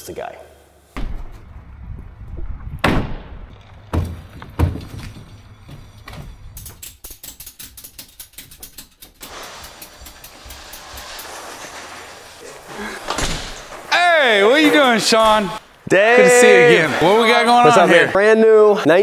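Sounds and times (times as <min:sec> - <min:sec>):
heavy thumps: 0:01.0 - 0:06.5
steady hiss: 0:09.2 - 0:18.1.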